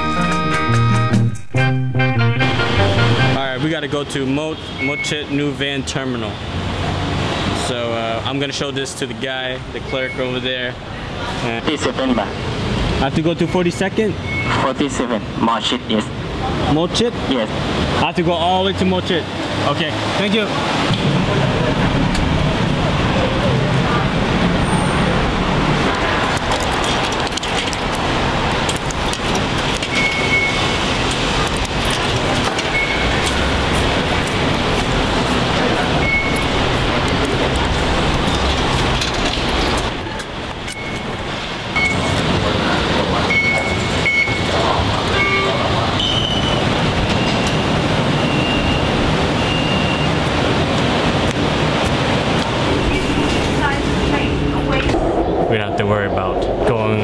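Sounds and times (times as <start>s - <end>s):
road traffic noise: 0.0s - 57.0s
short high beeps: 29.9s - 30.6s, 32.7s - 33.2s, 36.0s - 36.5s, 41.8s - 42.1s, 43.3s - 44.5s, 45.1s - 46.6s.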